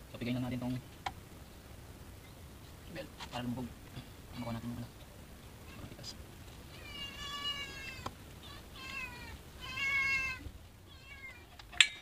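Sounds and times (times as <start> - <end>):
cat meowing: 6.7 - 11.6.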